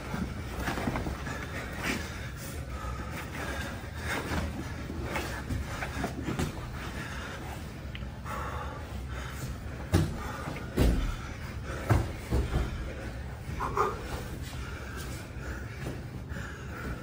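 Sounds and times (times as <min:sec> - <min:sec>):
bodies thumping on mat: 0:09.8 - 0:12.9.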